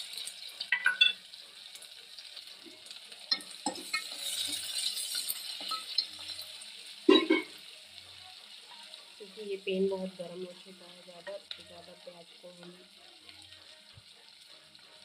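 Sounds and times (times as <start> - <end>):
onions sizzling in oil: 0.0 - 15.0
metal spoon scraping pot: 3.3 - 6.0.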